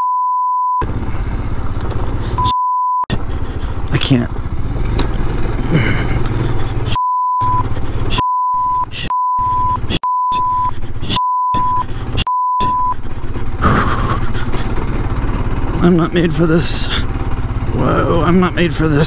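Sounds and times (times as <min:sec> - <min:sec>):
censor bleeps: 0:00.0 - 0:00.8, 0:07.0 - 0:13.0
motorcycle engine running: 0:00.8 - 0:02.5, 0:03.1 - 0:19.0
person swearing: 0:08.9 - 0:14.8.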